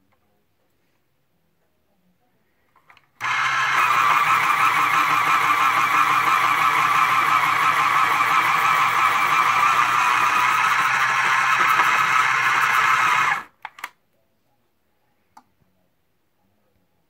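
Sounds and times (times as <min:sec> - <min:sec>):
pencil sharpener whirring: 0:03.2 - 0:13.5.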